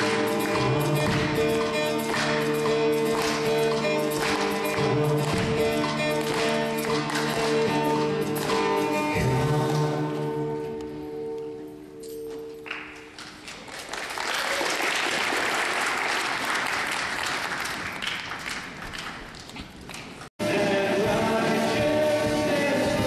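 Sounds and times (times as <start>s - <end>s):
large group applauding: 0.0s - 8.6s, 12.6s - 20.2s.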